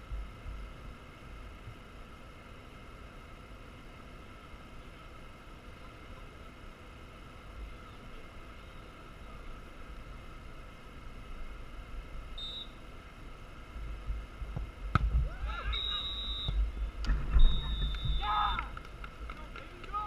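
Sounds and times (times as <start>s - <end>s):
referee's whistle blast: 12.4s - 12.8s, 15.6s - 16.6s, 17.4s - 18.7s
wind rumbling on microphone: 13.8s - 15.6s.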